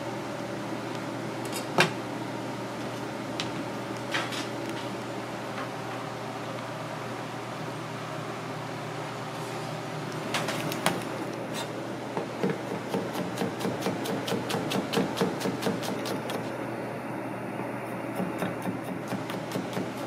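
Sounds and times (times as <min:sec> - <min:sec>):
steady background hum: 0:00.0 - 0:20.0
knife chopping on cutting board: 0:12.2 - 0:16.4, 0:18.2 - 0:20.0.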